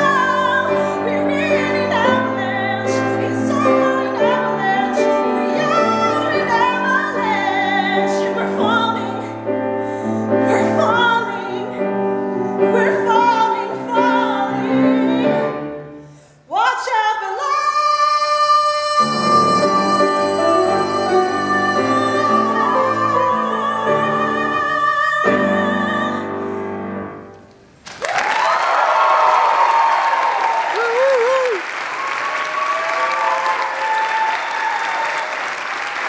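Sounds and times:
woman singing ballad: 0.0s - 9.6s, 10.4s - 15.6s, 16.5s - 26.6s
piano accompaniment: 0.0s - 16.1s, 18.9s - 27.8s.

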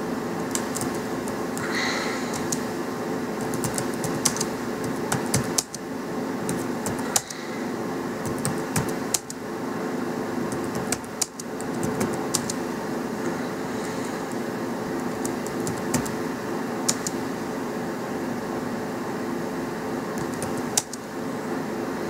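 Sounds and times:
steady low hum: 0.0s - 22.0s
keyboard key clicks: 2.3s - 2.6s, 3.4s - 5.8s, 8.2s - 9.4s, 10.5s - 12.6s, 15.2s - 16.2s, 16.9s - 17.2s, 20.2s - 21.0s.

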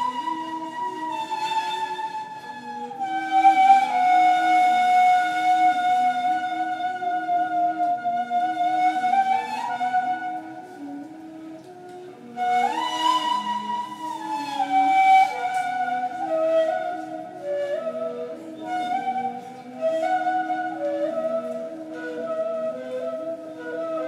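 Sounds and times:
reed flutes playing duet: 0.0s - 24.0s.

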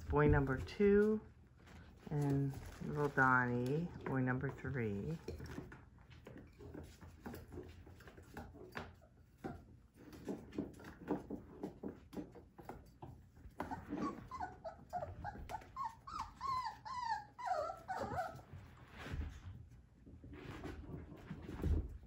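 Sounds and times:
small paws tapping and scuffling: 0.0s - 22.0s
puppy whining: 13.4s - 18.9s.

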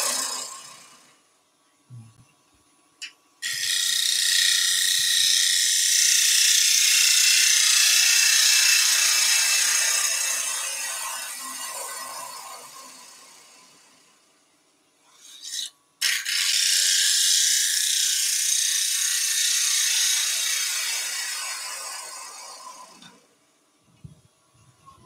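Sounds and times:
lathe gouge cutting wood: 0.0s - 1.0s, 3.5s - 13.9s, 15.3s - 23.1s.

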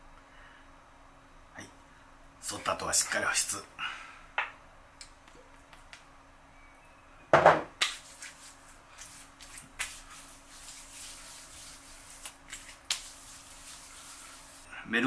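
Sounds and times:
hands rubbing skin: 7.8s - 14.7s.

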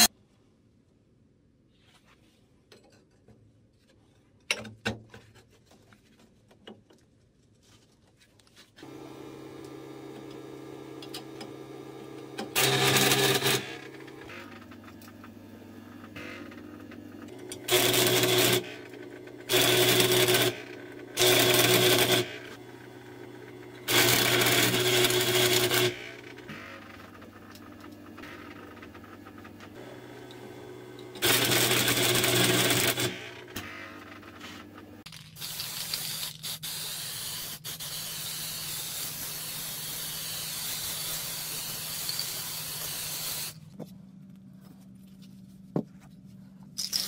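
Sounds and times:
welding machine hum: 8.8s - 36.6s.

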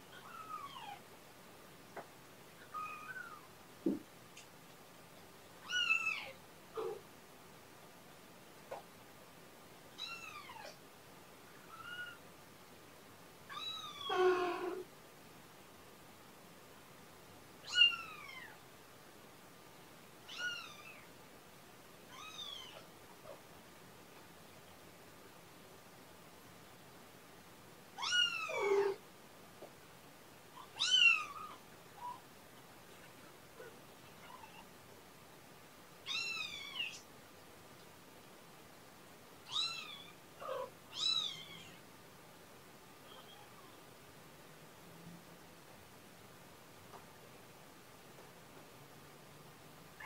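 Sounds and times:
kitten meowing: 13.5s - 14.8s, 30.7s - 32.2s, 36.1s - 37.0s.

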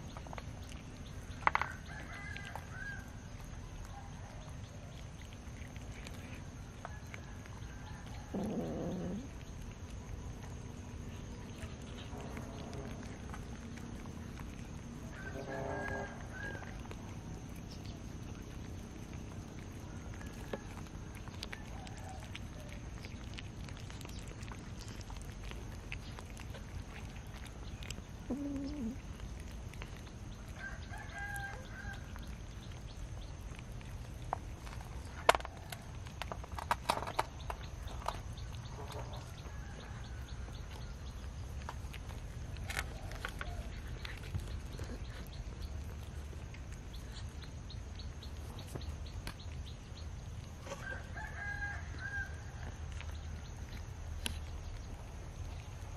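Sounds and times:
cats eating: 0.0s - 55.9s
bird calls: 26.0s - 33.3s.

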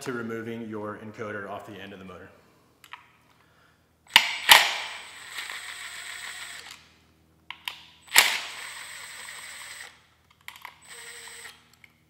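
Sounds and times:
cordless impact driver whining: 4.2s - 6.8s, 8.1s - 10.0s, 10.6s - 11.8s.

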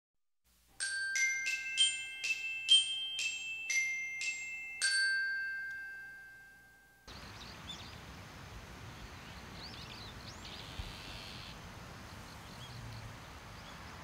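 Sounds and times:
bell-like mallet jingle: 0.8s - 7.1s.

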